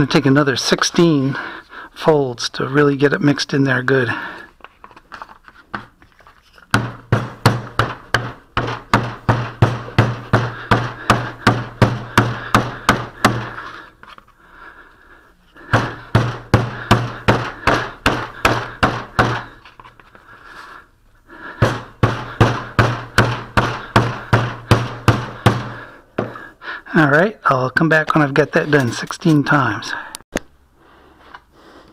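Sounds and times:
wooden mallet beating putty: 6.6s - 14.1s, 15.6s - 19.7s, 21.5s - 26.4s.

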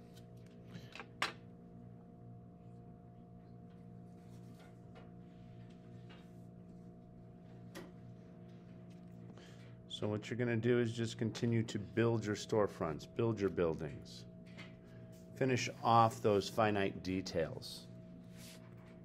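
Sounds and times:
electrical hum: 0.0s - 19.0s.

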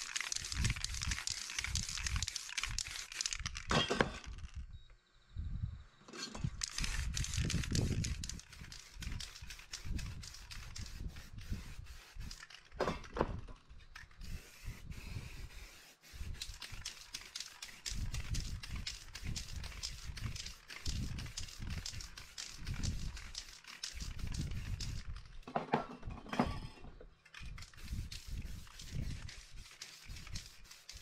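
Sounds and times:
spray paint can hissing: 0.0s - 3.7s, 6.5s - 12.6s, 14.0s - 25.2s, 27.4s - 31.0s.

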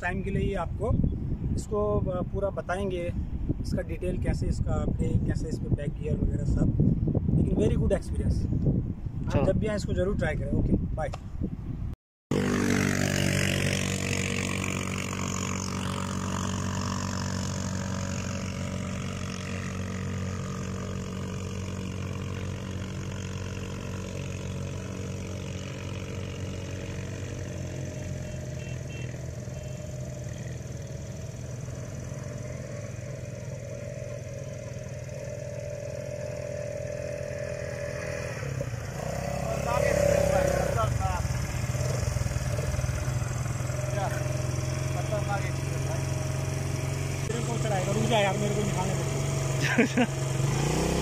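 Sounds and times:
quad bike engine running: 12.3s - 51.0s.

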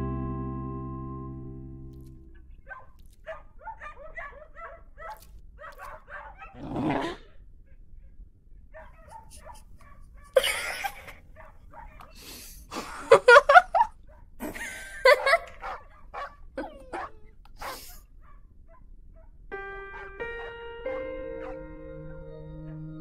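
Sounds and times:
cartoon puppy whimpering and yipping: 16.6s - 17.9s.

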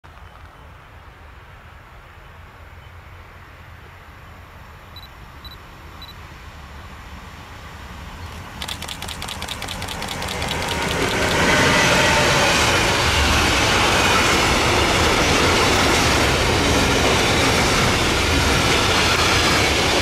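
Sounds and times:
train rumble and rush passing: 0.1s - 20.0s
rapid ticking: 8.6s - 11.5s.

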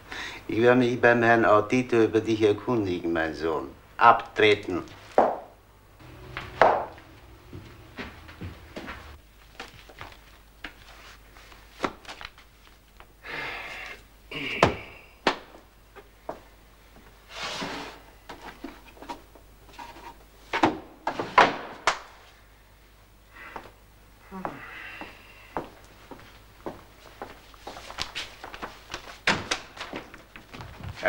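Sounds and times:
paper rustling: 8.9s - 13.0s, 27.4s - 31.0s.

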